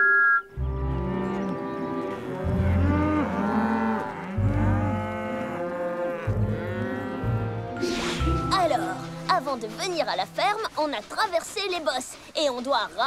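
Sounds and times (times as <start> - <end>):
cartoon cows mooing: 0.7 - 7.8.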